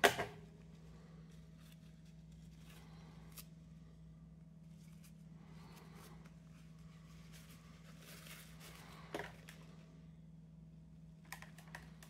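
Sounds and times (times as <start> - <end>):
steady low hum: 0.0 - 12.0
paper tissue rustling: 0.6 - 3.8, 4.6 - 9.9.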